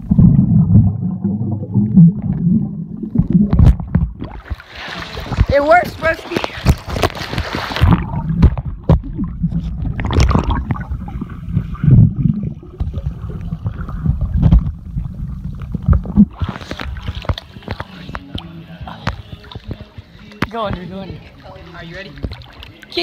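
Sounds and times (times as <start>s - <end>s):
muffled underwater rumble: 0.0s - 4.6s, 6.6s - 20.3s
water splash: 0.0s - 20.8s
underwater knocks and gurgling: 0.0s - 21.3s, 22.1s - 22.8s.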